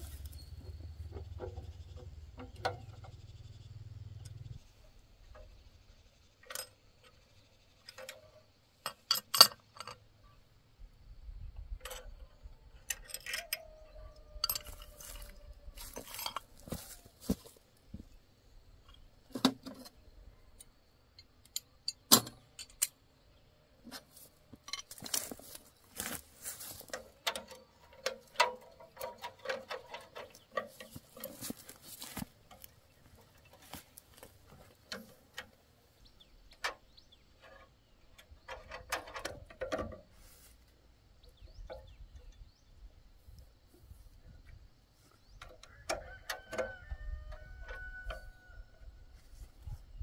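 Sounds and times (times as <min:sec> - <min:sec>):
metal tools clinking and knocking: 0:06.4 - 0:07.2, 0:07.8 - 0:10.0, 0:11.8 - 0:17.5, 0:24.5 - 0:35.5, 0:36.6 - 0:40.0
metal rubbing and scraping: 0:12.8 - 0:17.5.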